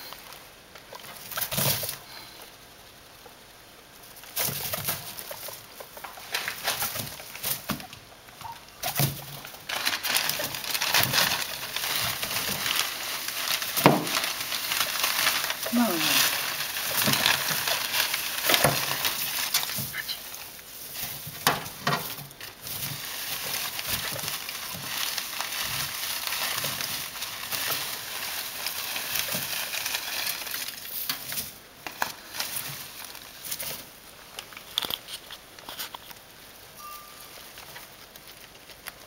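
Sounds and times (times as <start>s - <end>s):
dry hay rustling and crackling: 3.4s - 34.6s.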